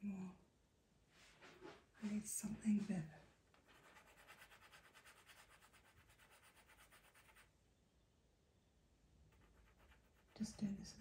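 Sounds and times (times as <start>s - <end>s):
pencil rubbing on sandpaper: 3.6s - 7.5s, 9.3s - 10.4s.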